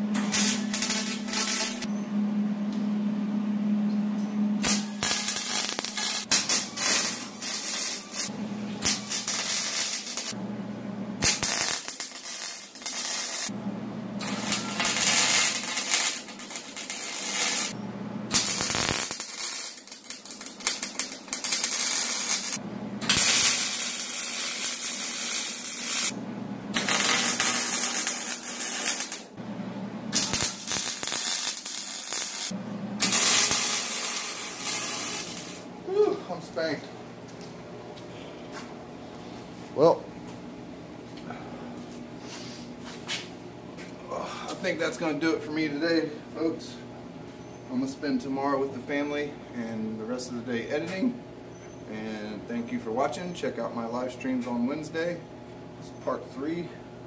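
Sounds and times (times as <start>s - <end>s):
welder arc crackling and hissing: 0.0s - 1.9s, 4.6s - 10.4s, 11.2s - 13.6s, 14.2s - 29.4s, 30.1s - 35.7s.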